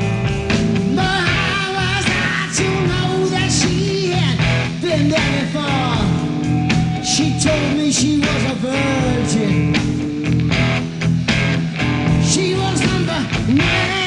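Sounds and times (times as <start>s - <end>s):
bass guitar: 0.0s - 14.0s
drums: 0.0s - 14.0s
electric guitar: 0.0s - 14.0s
person singing: 0.8s - 10.2s, 12.2s - 14.0s.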